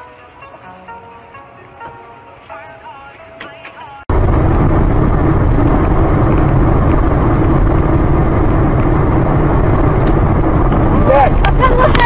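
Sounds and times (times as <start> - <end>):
vehicle road and engine rumble: 3.7 - 12.0.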